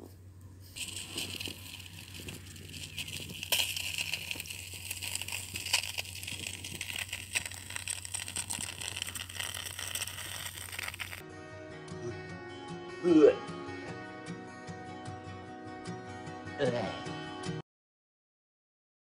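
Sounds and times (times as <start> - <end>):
hydrogen peroxide fizzing and popping: 0.8 - 11.2.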